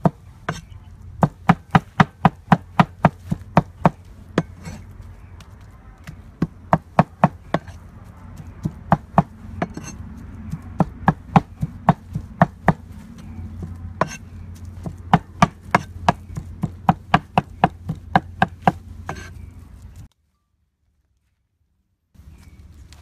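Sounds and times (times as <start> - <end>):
cleaver chopping on wooden board: 0.0 - 4.8, 6.1 - 7.8, 8.6 - 9.9, 10.5 - 12.8, 14.8 - 19.3.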